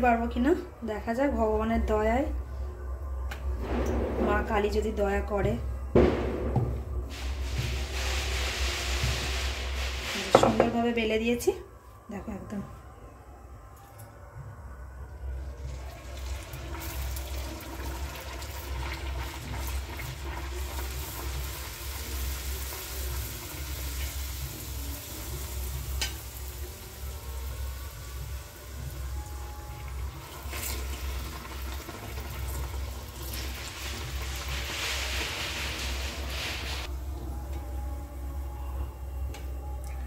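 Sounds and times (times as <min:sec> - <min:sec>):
low rumble: 0:02.4 - 0:10.9
food deep-frying in hot oil: 0:15.5 - 0:36.9.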